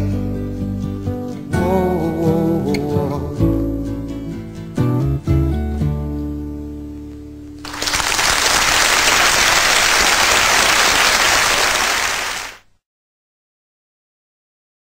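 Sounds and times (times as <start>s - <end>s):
audience applause: 7.6s - 12.6s.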